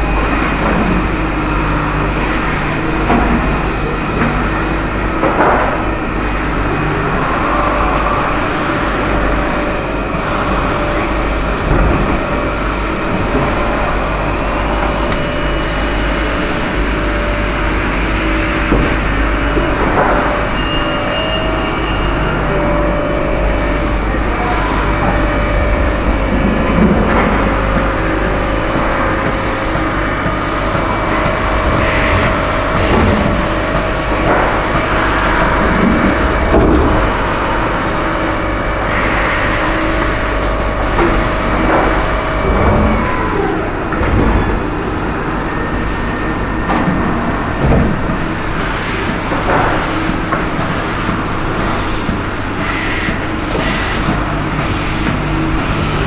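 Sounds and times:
machine hum: 0:00.0 - 0:56.0
steady machine whine: 0:00.0 - 0:56.0.

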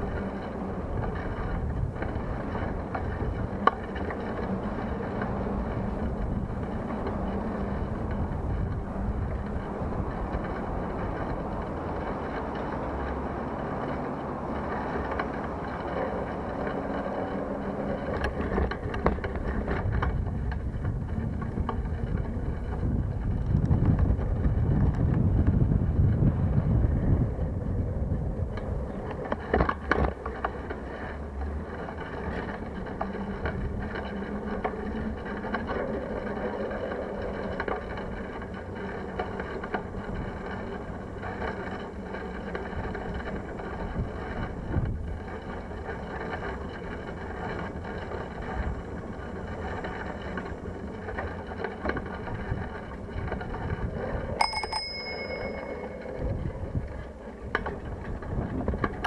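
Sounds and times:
bicycle frame rattles: 0:00.0 - 0:59.0
bicycle rolling rumble: 0:00.0 - 0:59.0
bicycle bell ringing: 0:54.4 - 0:56.6.

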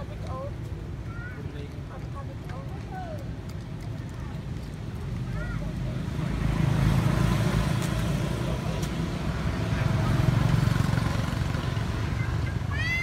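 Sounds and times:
motor vehicle passing: 0:02.8 - 0:13.0.

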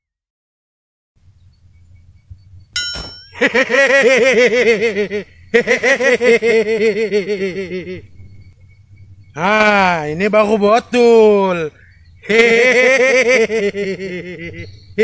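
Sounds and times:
short metallic ding: 0:02.8 - 0:03.4
man laughing loudly: 0:03.3 - 0:08.1, 0:12.2 - 0:15.0.

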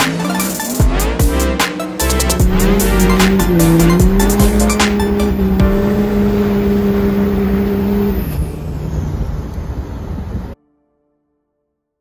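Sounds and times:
diesel engine under load: 0:00.1 - 0:10.6.

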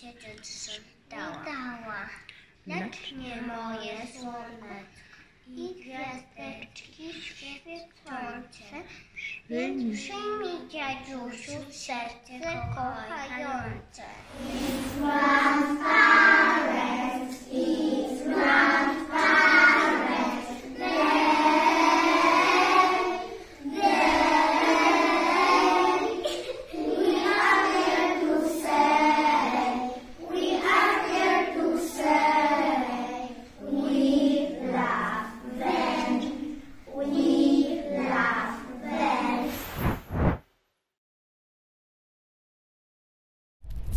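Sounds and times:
children singing together: 0:14.3 - 0:39.5.

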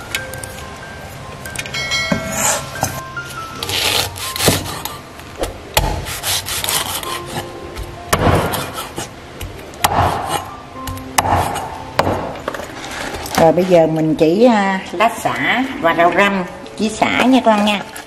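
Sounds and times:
blade scraping wood: 0:06.0 - 0:07.5
cleaver chopping on wooden board: 0:08.1 - 0:08.8, 0:09.8 - 0:10.4, 0:11.2 - 0:12.4.

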